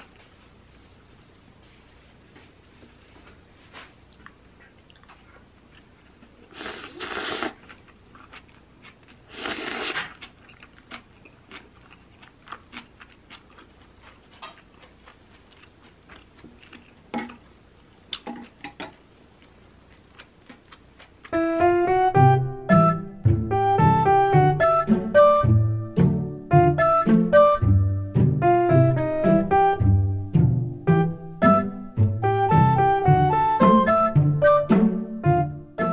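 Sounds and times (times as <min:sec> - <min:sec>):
chewing with small crunches: 0:02.9 - 0:21.4
slurping noodles: 0:06.5 - 0:07.6, 0:09.3 - 0:10.2
piano music: 0:21.3 - 0:35.9.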